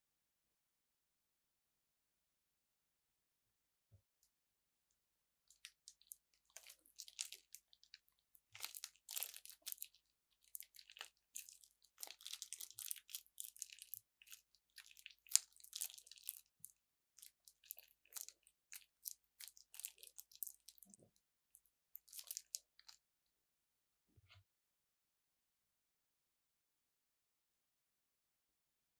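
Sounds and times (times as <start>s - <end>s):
slime crackling and popping: 5.5s - 21.0s, 22.0s - 22.9s.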